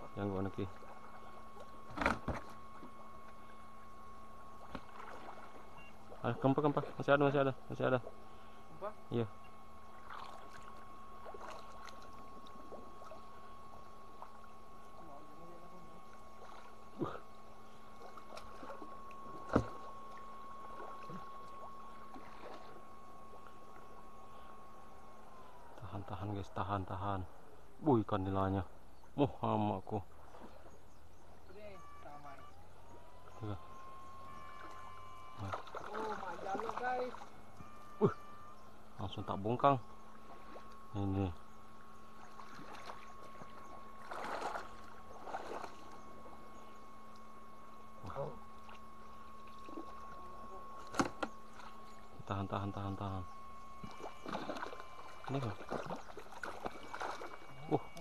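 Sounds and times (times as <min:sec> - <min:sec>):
water splashing: 0:04.6 - 0:07.1, 0:09.9 - 0:13.4, 0:17.9 - 0:23.8, 0:34.3 - 0:37.4, 0:40.1 - 0:40.8, 0:42.2 - 0:46.4, 0:48.5 - 0:52.2, 0:53.8 - 0:58.0.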